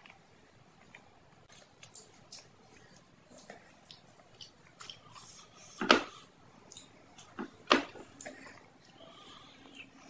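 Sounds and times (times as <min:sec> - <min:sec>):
close chewing: 0:00.8 - 0:05.8.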